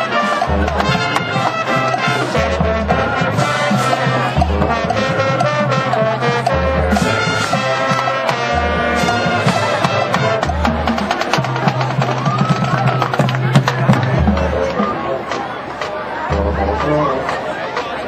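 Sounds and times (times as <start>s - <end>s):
brass playing sustained chords: 0.0s - 10.5s
drumline: 0.0s - 18.0s.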